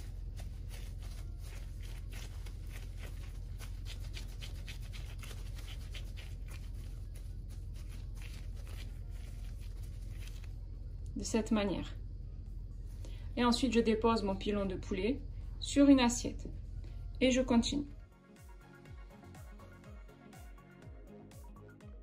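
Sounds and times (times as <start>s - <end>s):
squishing mash: 0.0s - 10.8s
gloves rustling and crackling: 0.0s - 11.2s
steady low hum: 0.0s - 18.1s.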